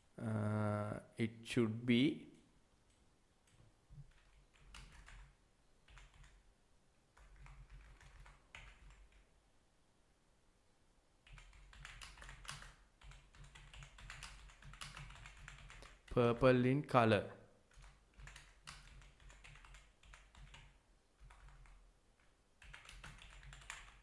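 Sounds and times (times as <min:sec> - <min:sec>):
faint keyboard typing: 0:02.3 - 0:06.4, 0:07.1 - 0:09.3, 0:11.2 - 0:16.4, 0:17.6 - 0:24.0.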